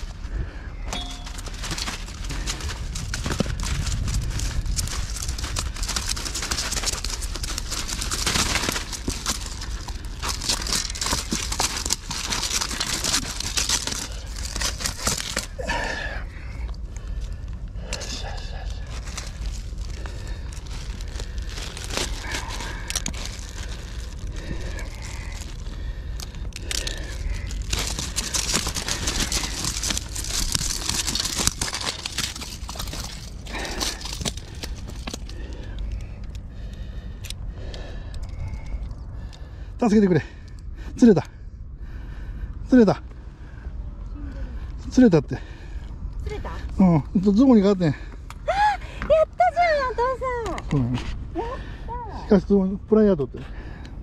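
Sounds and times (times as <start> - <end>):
wind rumble on microphone: 0.0 - 11.7, 13.7 - 39.8
plastic bag crinkling: 0.9 - 15.8, 18.6 - 36.3
fish thrashing on concrete: 1.0 - 16.0, 18.9 - 35.6.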